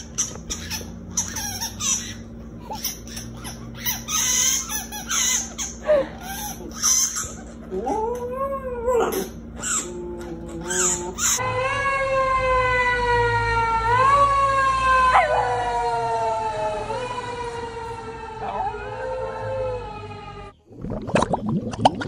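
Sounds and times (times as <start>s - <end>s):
dog howling: 7.2s - 20.5s
siren wailing: 10.6s - 20.6s.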